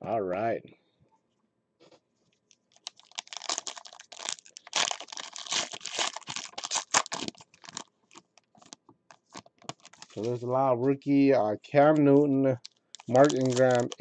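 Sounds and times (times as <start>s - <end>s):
foil pack crinkling and tearing: 2.5s - 10.4s, 12.6s - 14.0s.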